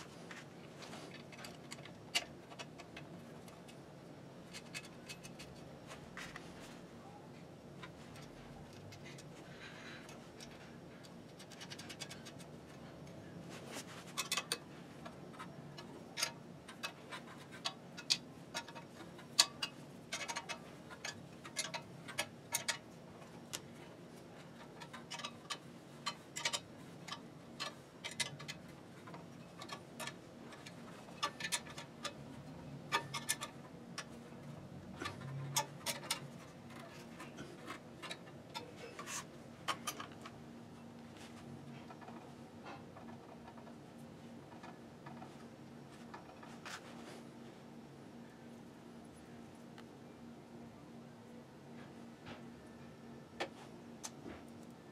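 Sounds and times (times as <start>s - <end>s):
small metallic clicks and taps: 0.3s - 3.8s, 10.0s - 13.2s, 14.1s - 23.8s, 24.4s - 43.8s, 53.4s - 54.7s.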